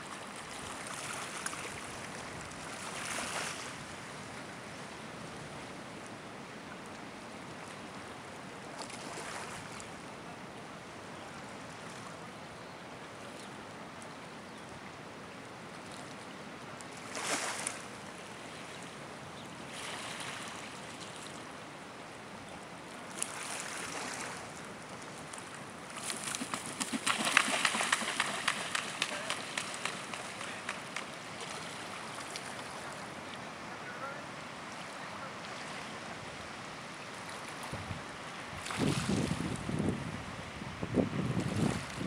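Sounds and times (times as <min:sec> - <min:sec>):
small waves washing: 0:00.0 - 0:06.0, 0:07.4 - 0:10.1, 0:16.8 - 0:40.6
wind: 0:00.0 - 0:42.0
pelican splashing across water: 0:17.0 - 0:17.8, 0:23.1 - 0:33.1.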